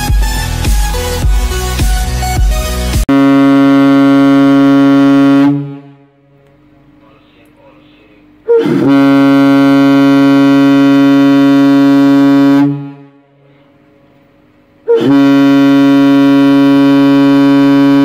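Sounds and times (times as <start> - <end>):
ship's whistle blasts: 3.1 - 6.0, 8.5 - 13.2, 14.9 - 18.0.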